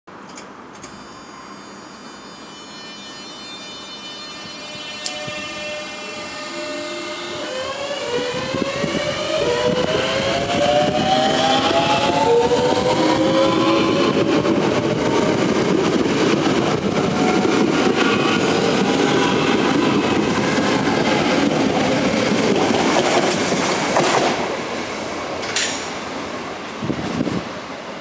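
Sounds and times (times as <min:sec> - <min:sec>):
electric train motors whining: 0:00.8 - 0:22.6.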